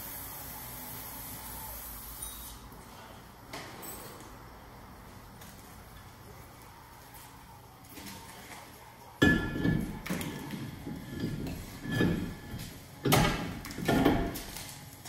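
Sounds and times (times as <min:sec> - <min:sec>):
metal scraping and clinking: 0:09.2 - 0:14.7.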